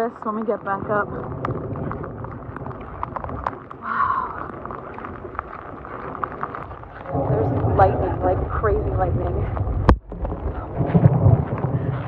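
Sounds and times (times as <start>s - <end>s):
heavy rain: 0.0s - 12.0s
raindrops tapping: 0.0s - 12.0s
wind rumbling on microphone: 0.0s - 12.0s.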